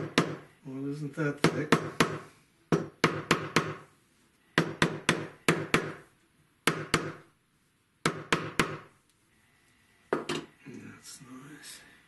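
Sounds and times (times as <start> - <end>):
wooden mallet knocking: 0.0 - 0.5, 1.4 - 3.8, 4.6 - 6.0.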